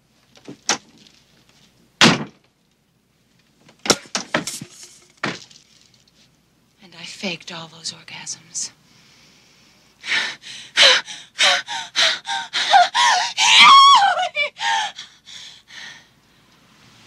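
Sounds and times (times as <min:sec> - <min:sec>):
woman gasping and moaning: 0:10.0 - 0:16.1
woman's high quavering cry: 0:10.8 - 0:15.1.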